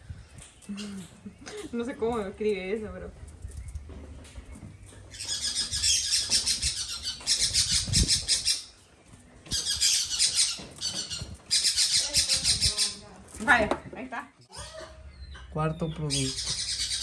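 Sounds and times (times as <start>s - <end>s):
bird squawking: 5.1s - 8.7s, 9.5s - 13.1s, 14.6s - 17.0s.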